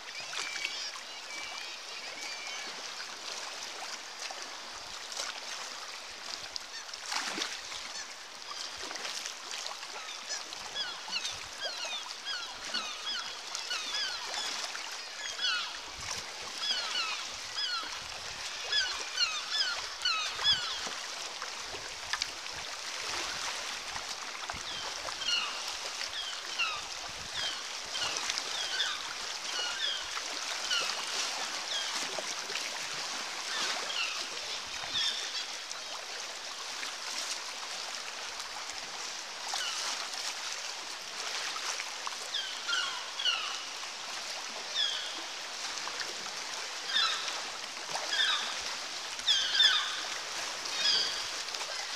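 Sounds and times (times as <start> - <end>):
sea water splashing: 0.0 - 51.9
seabirds calling: 49.2 - 51.9.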